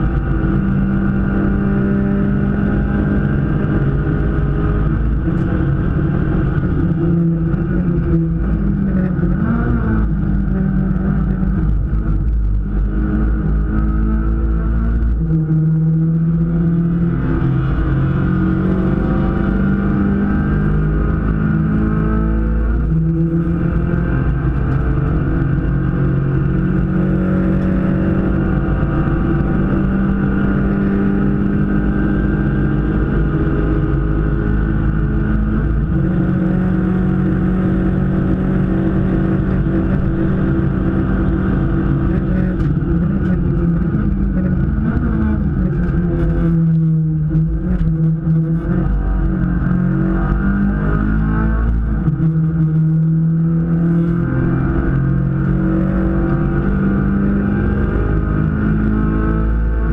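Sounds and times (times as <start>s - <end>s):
race car engine at high revs: 0.0s - 59.9s.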